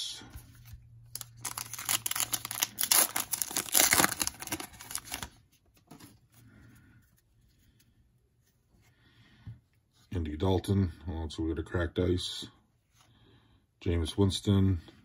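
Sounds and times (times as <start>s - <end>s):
cards being handled: 0.3s - 6.3s
foil wrapper tearing and crinkling: 1.1s - 5.4s.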